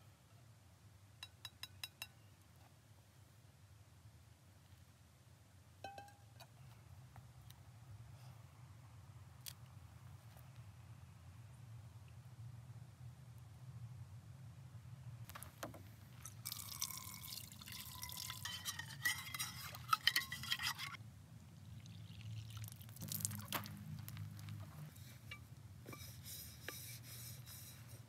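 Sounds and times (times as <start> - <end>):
light clinks against pot: 1.2 - 2.3, 5.8 - 6.6, 16.2 - 21.0
water pouring out of pot: 16.2 - 21.0, 21.7 - 23.6
water splashing in saucepan: 16.4 - 20.6, 21.7 - 23.6.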